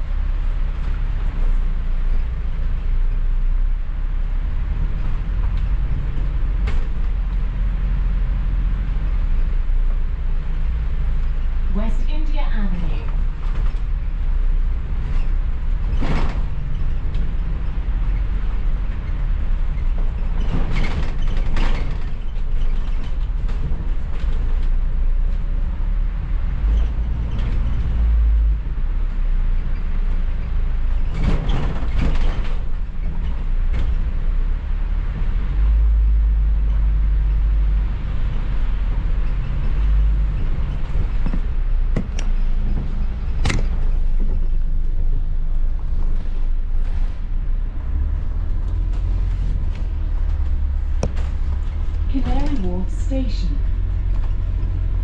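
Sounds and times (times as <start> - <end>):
bus engine and road rumble: 0.0 - 55.0
sharp knocks and rattles: 13.0 - 25.5, 29.4 - 34.5, 35.1 - 55.0.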